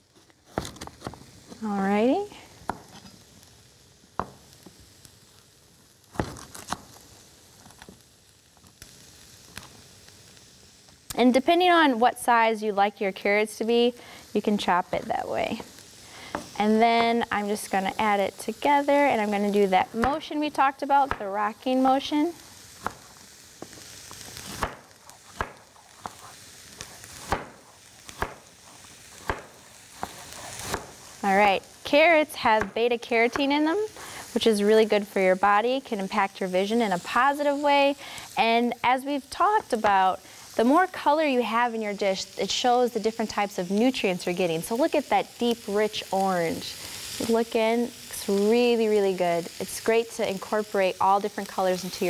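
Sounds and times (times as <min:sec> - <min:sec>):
faint sizzle of sauteing: 0:00.0 - 0:52.0
knife chopping on wooden board: 0:25.4 - 0:26.2, 0:28.2 - 0:28.4.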